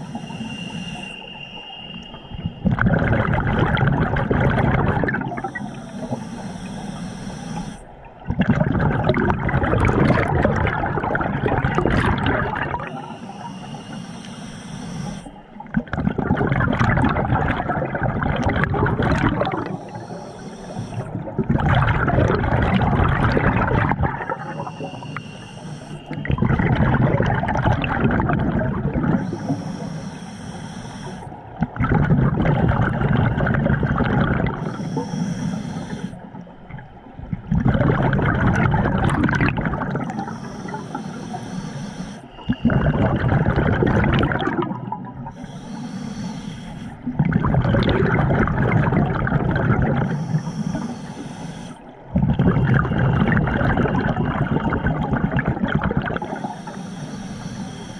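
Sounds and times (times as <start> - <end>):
hissing inhale through regulator: 0.0 - 8.2, 9.0 - 57.9
exhaled bubbles rushing: 2.4 - 6.2, 8.0 - 13.1, 15.5 - 25.0, 26.0 - 29.6, 31.5 - 35.0, 36.3 - 40.9, 42.4 - 45.4, 47.0 - 51.2, 51.9 - 56.6.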